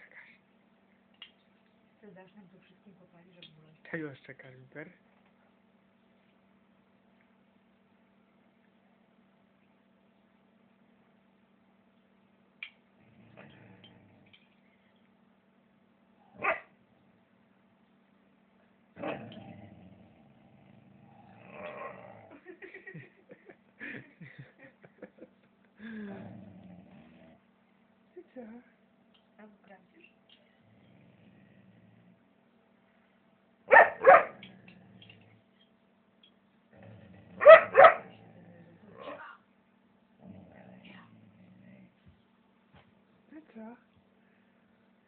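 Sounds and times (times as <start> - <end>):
puppy barking: 16.4 - 16.7, 33.7 - 34.4, 37.4 - 38.1.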